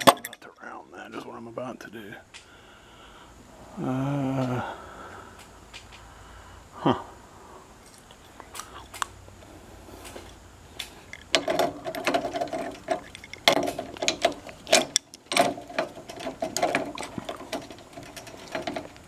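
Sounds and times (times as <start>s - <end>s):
wrench clicking and scraping metal: 11.1s - 19.0s.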